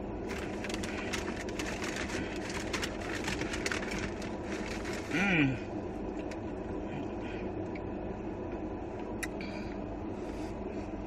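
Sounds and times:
low car cabin hum: 0.0 - 11.0
paper food wrapping crackling: 0.3 - 5.3.

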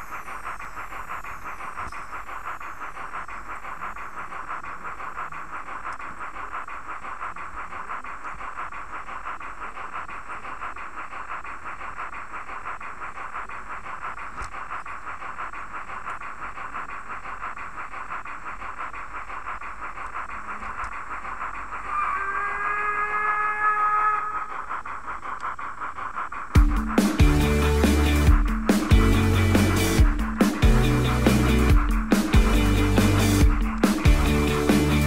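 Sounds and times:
model steam locomotive chuffing: 0.0 - 35.0.

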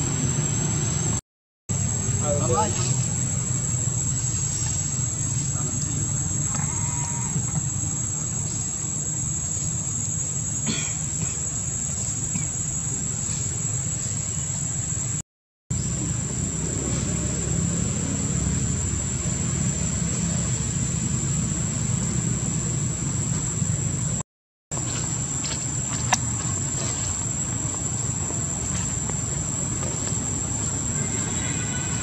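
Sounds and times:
continuous low rumble: 0.0 - 32.0
high-pitched insect drone: 1.8 - 15.2, 24.8 - 32.0.

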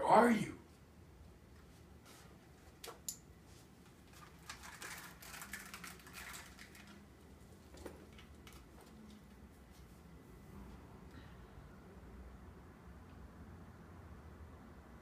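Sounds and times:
headphones rustling and clicking: 1.5 - 9.9.

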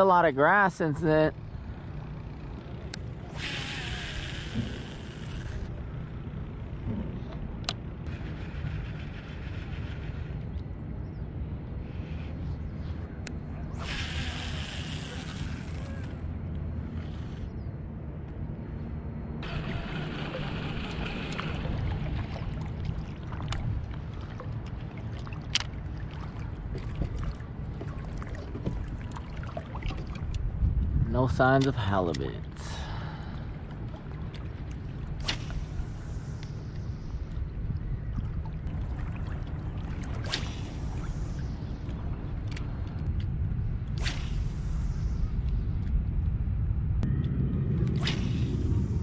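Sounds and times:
wind rumbling on microphone: 1.4 - 49.0
fishing reel clicks: 2.9 - 5.7, 13.8 - 16.2
water lapping against float: 19.4 - 30.8, 31.6 - 44.2
fishing rod cast swish: 35.2 - 36.2, 40.2 - 41.4, 43.9 - 44.9, 47.8 - 48.6.

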